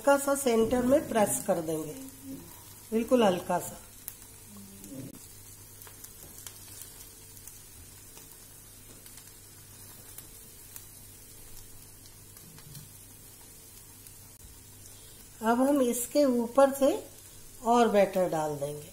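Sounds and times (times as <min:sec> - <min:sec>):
batter sizzling in a pan: 0:00.0 - 0:18.9
small pops and crackles: 0:03.9 - 0:15.4.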